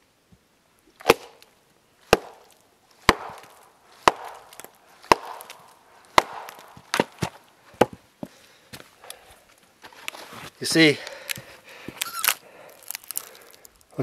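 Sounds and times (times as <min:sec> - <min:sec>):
axe chopping firewood: 0:00.9 - 0:08.0.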